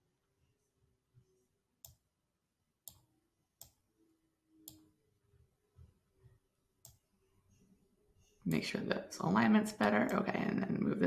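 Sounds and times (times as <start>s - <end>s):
computer mouse clicks: 4.6s - 4.8s.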